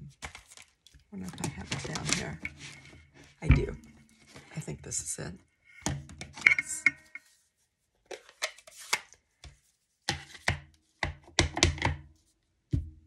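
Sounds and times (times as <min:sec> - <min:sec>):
plastic taps and clacks: 0:09.4 - 0:12.0.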